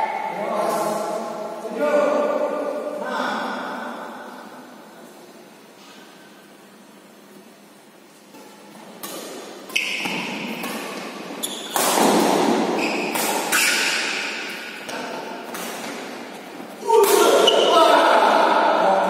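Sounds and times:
shoes squeaking on court: 8.4s - 16.7s
rackets hitting shuttlecock: 8.4s - 17.7s.

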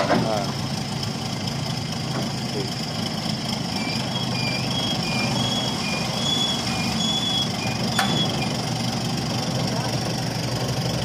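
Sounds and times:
diesel engine hum: 0.0s - 11.0s
crane warning alarm beeping: 3.8s - 8.6s.

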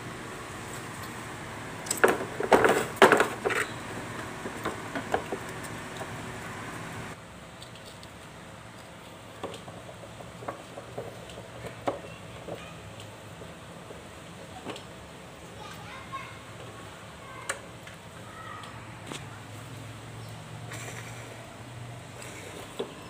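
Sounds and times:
steady hiss: 0.0s - 7.3s
plastic knocks and rattles: 1.9s - 3.7s, 4.4s - 6.2s.

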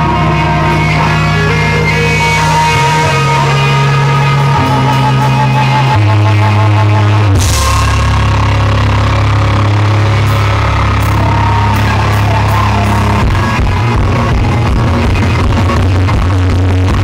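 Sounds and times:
bass guitar line: 0.0s - 17.0s
distorted live rock band: 0.0s - 17.0s.

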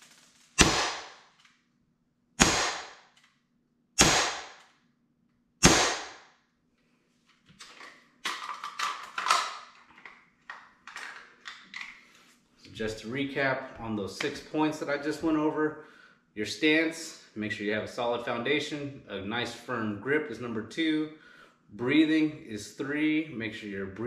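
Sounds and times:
air pistol shots: 0.6s - 1.3s, 2.4s - 3.1s, 4.0s - 4.6s, 5.6s - 6.3s
pistol handling clicks and rustling: 7.5s - 12.0s.

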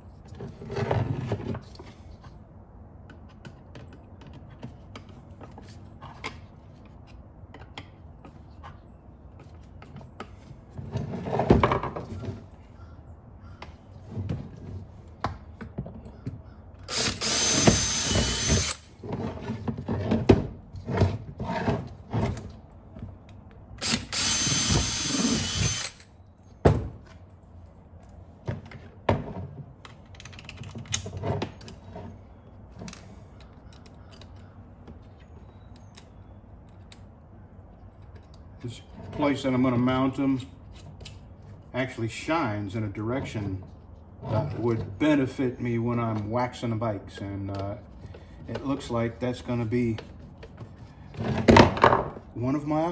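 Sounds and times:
power drill whirring: 16.9s - 18.9s, 23.8s - 26.1s.

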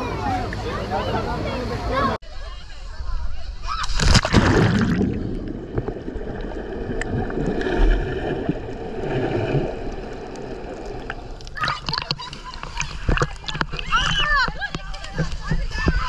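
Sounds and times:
loud splash: 3.8s - 12.2s
sea water sloshing and gurgling: 3.8s - 16.0s.

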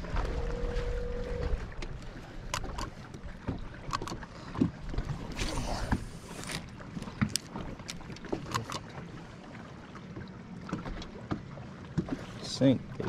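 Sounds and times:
water and wind noise: 0.0s - 13.0s
fishing rod clicks and knocks: 1.8s - 4.7s, 5.3s - 9.0s.

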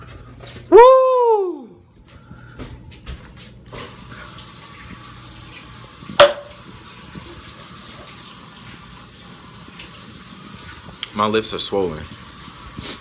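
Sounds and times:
water running from a tap: 3.7s - 13.0s.

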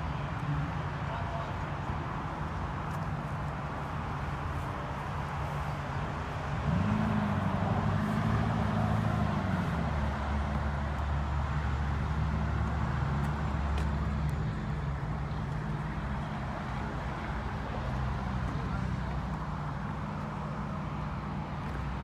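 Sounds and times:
car engine revving: 6.6s - 10.6s.

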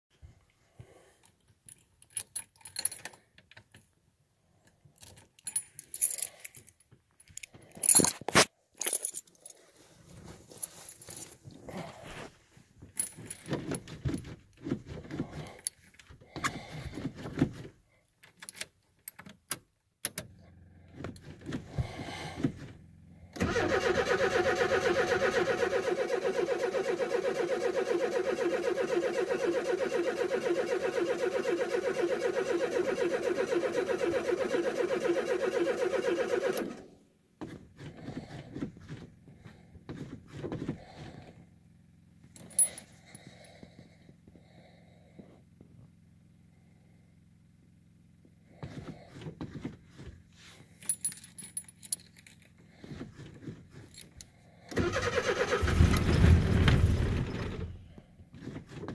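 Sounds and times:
keys jangling: 1.7s - 3.2s, 5.0s - 9.6s, 42.4s - 42.9s, 50.8s - 52.5s
car engine starting and running: 20.1s - 36.9s, 54.7s - 58.0s.

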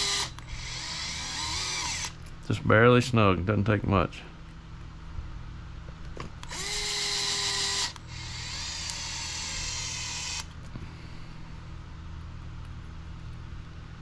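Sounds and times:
electric screwdriver whine: 0.0s - 2.2s, 6.4s - 10.6s.

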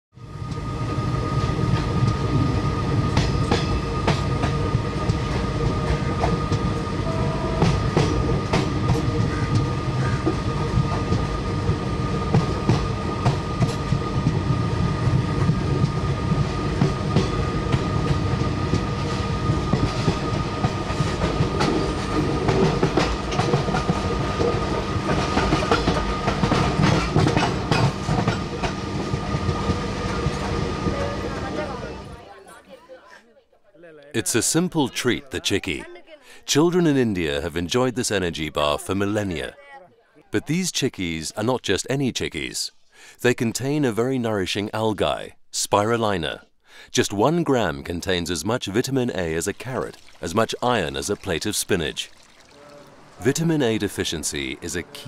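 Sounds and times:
train rumble: 0.2s - 32.3s
wheels clacking over rail joints: 16.8s - 31.8s.

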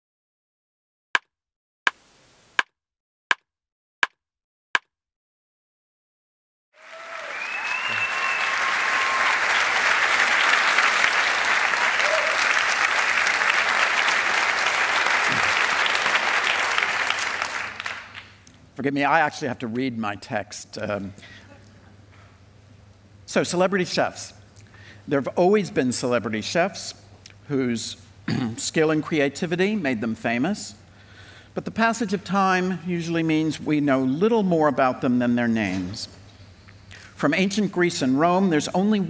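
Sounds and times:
audience applause: 6.8s - 18.4s.

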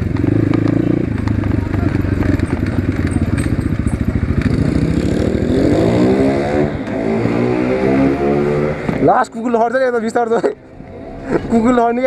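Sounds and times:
dirt bike engine revving: 0.0s - 9.1s.

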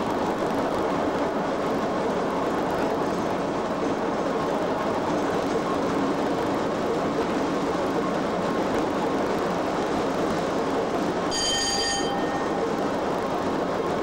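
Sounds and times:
locomotive wheels rumbling on rail: 0.0s - 14.0s
high ringing tone: 11.3s - 12.8s.

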